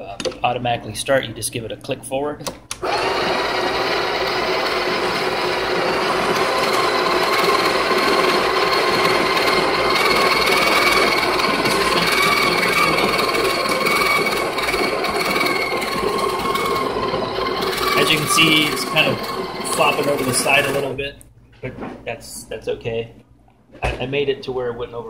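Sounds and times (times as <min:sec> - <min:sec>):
coffee grinder whining: 0:02.8 - 0:21.0.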